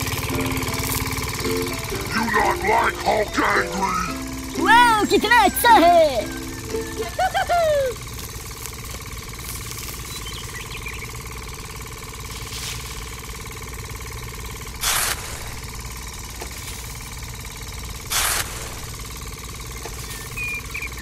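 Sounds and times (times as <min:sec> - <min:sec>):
steady mechanical hum: 0:00.0 - 0:21.0
trowel scooping rice grains: 0:12.3 - 0:13.2.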